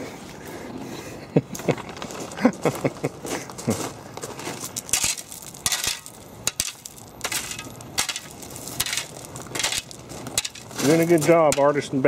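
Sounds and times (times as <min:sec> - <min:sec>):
shovel scraping gravel: 0:04.2 - 0:12.0.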